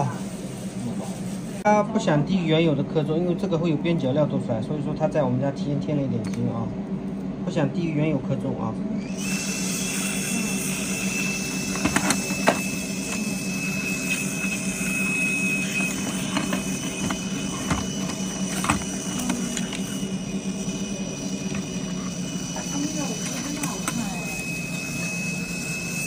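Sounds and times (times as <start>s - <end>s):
gas torch burning: 9.0s - 26.0s.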